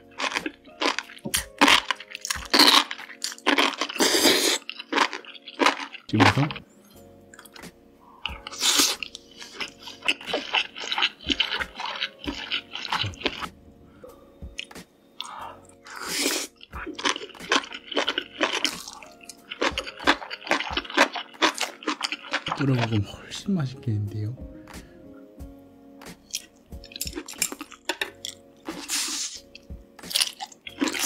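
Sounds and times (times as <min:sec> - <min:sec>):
wet chewing and smacking: 0:00.0 - 0:06.6, 0:07.3 - 0:13.6, 0:14.5 - 0:23.0, 0:26.2 - 0:31.0
breathy bursts: 0:15.2 - 0:16.6.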